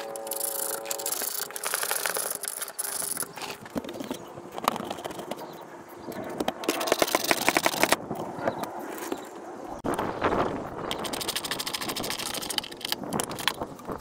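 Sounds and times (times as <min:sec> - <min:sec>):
hand tools clicking and scraping: 0:00.0 - 0:09.4, 0:10.8 - 0:14.0
rapid even clicking: 0:06.4 - 0:08.0, 0:10.8 - 0:14.0.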